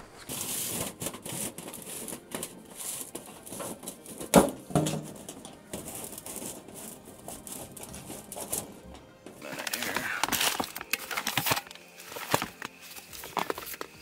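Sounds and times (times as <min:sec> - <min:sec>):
metal pipe scraping: 0:00.0 - 0:14.0.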